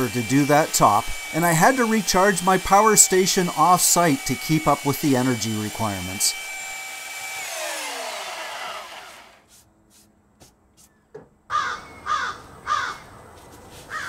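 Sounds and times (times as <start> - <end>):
belt sander winding down: 0.0 - 9.4
bird harsh calls: 10.8 - 13.1.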